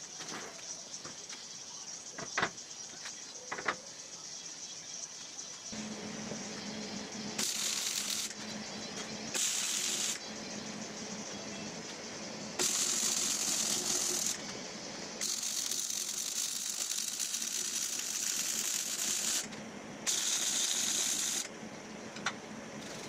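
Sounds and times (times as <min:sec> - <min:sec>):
welder arc crackling: 0:05.8 - 0:08.5, 0:09.3 - 0:10.2, 0:12.5 - 0:14.6, 0:15.2 - 0:19.5, 0:20.1 - 0:21.5.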